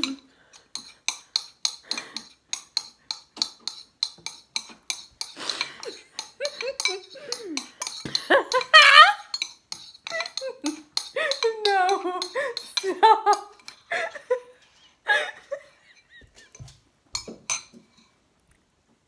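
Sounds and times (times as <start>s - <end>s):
spoons clinking against bowls: 0.0s - 14.0s, 16.0s - 18.2s
women laughing: 5.8s - 9.3s, 12.3s - 16.7s.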